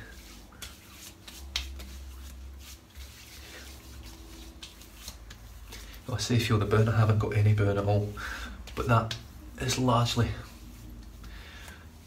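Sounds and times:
hands rubbing skin: 0.0s - 12.0s
wet pats on skin: 0.1s - 6.0s, 8.6s - 9.4s.

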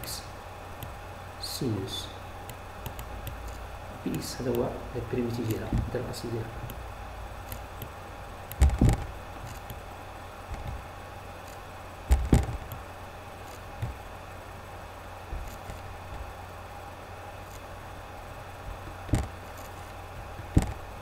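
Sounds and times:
steady background hum and hiss: 0.0s - 21.0s
dull low thumps: 8.6s - 9.3s.

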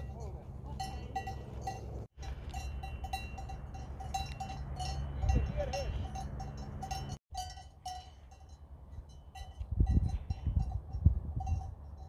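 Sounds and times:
sheep bells clinking: 0.0s - 12.0s
wind rumble on microphone: 8.9s - 12.0s.

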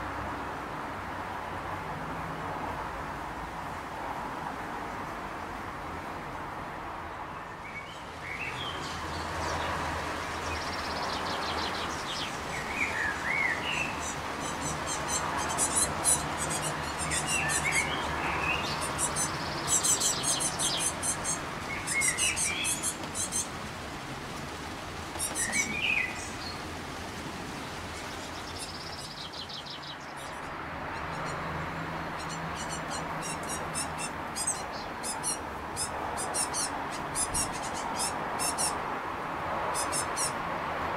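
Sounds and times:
lower curving bird chirps: 10.3s - 23.5s, 25.2s - 26.6s, 27.9s - 31.5s, 32.1s - 38.8s
fledglings high-pitched begging calls: 12.8s - 23.5s, 25.2s - 26.3s, 32.2s - 38.8s, 39.7s - 40.4s.

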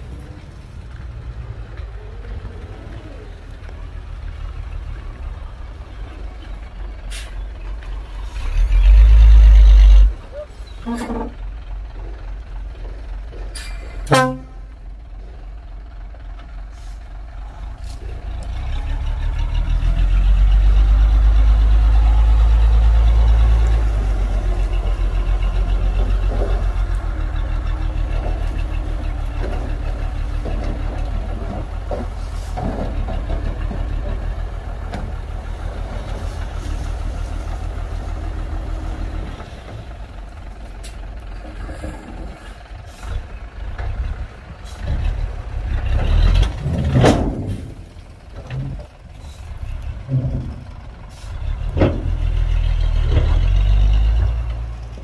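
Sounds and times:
heavy diesel engine under load: 0.0s - 55.0s
loud horn toot: 14.1s - 14.7s.

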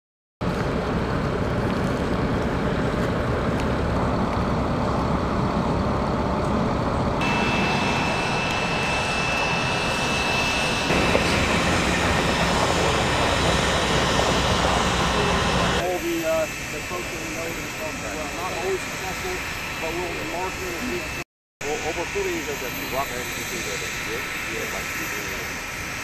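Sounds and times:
heavy diesel engines rumbling: 0.5s - 21.1s
thin steady whine: 2.5s - 26.0s.

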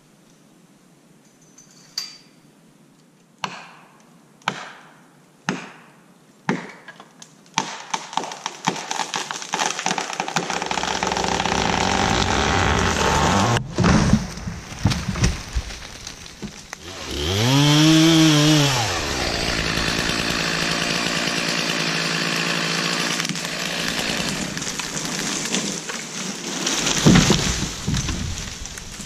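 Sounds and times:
tree falling with crackling crash: 7.7s - 29.0s
sharp wooden knocks: 27.0s - 28.5s.

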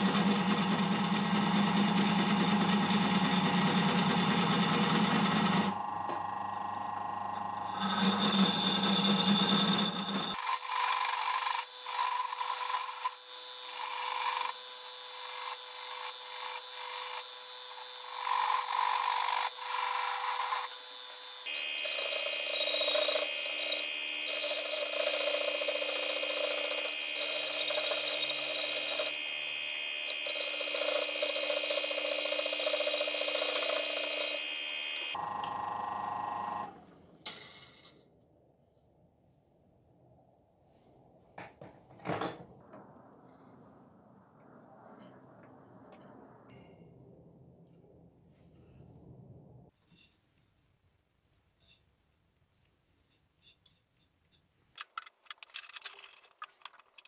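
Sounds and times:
tool scraping spinning wood: 0.0s - 6.2s, 7.2s - 17.2s, 21.5s - 29.3s, 30.0s - 35.2s
drill press whining: 0.0s - 36.9s.

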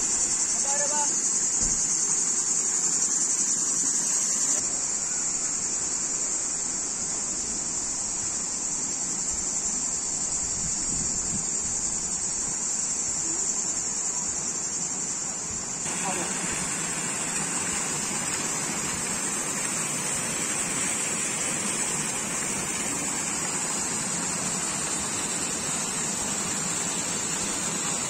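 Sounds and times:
flowing water rushing: 0.0s - 5.0s, 15.6s - 28.0s.

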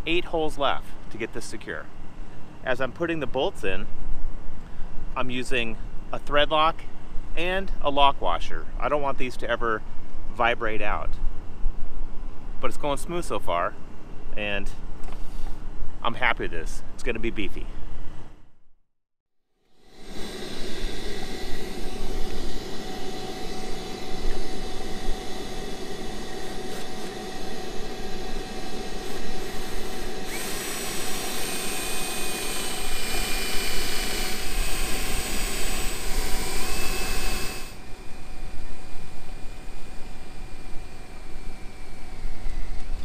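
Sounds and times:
cordless drill whine: 19.7s - 43.0s
shop vacuum running: 19.7s - 43.0s.

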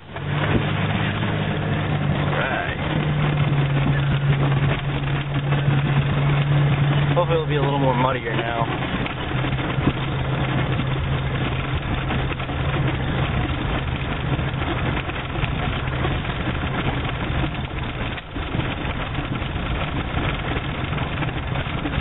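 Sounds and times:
car engine low hum: 0.0s - 22.0s.

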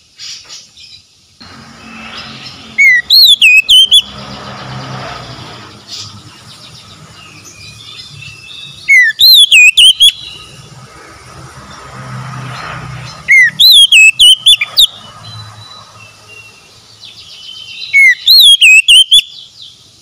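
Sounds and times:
bird singing whistled phrases: 2.7s - 4.1s, 7.6s - 10.4s, 13.3s - 15.4s, 17.3s - 19.5s.

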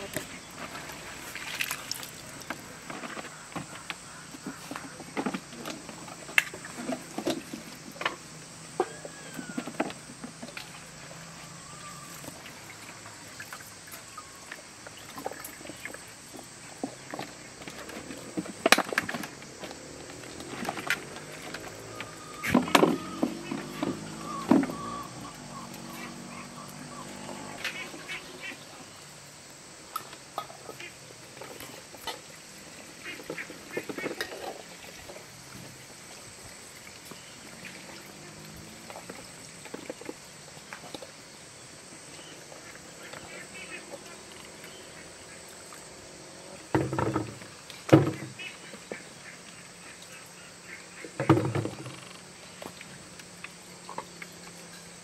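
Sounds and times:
animal calls: 8.7s - 10.0s, 19.7s - 29.0s.

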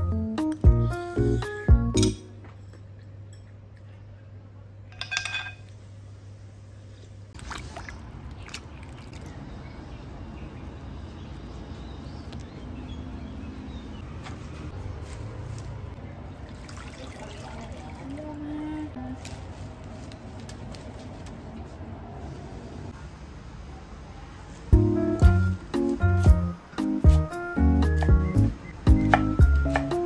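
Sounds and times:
utensil clinking on dish: 4.9s - 5.7s
water sloshing in bowl: 7.4s - 9.4s, 16.3s - 18.7s.

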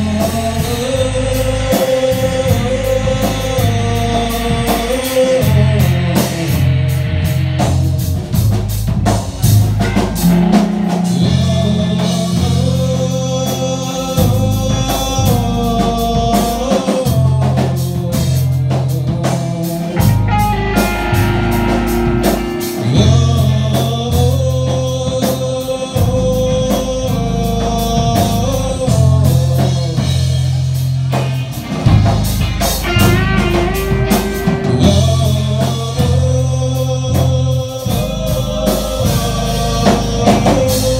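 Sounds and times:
person singing: 0.0s - 8.6s, 9.4s - 31.9s, 32.6s - 40.9s
bass guitar: 0.0s - 40.9s
drum kit: 0.0s - 40.9s
electric guitar: 0.0s - 40.9s.

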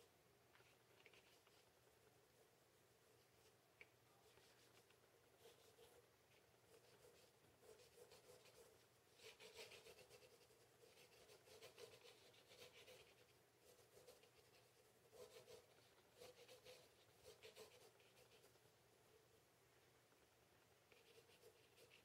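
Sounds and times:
pencil scratching on paper: 4.3s - 6.0s, 6.7s - 18.6s, 20.9s - 22.0s.

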